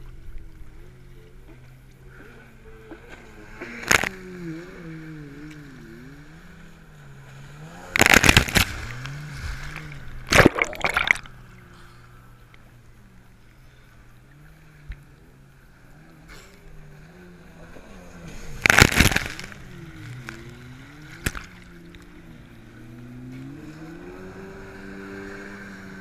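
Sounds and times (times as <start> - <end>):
jet ski engine running: 0.0 - 10.4, 11.0 - 26.0
water spray splashing: 8.0 - 11.4, 18.4 - 20.5.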